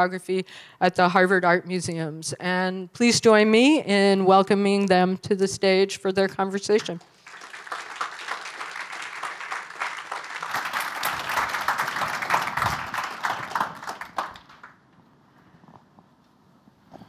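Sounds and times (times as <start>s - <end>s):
audience applauding: 7.1s - 14.8s.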